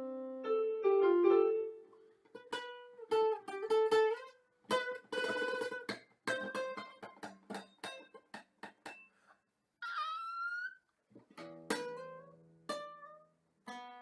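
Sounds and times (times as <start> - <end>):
electronic keyboard notes: 0.0 - 1.9
classical guitar playing: 0.0 - 8.2, 11.4 - 14.0.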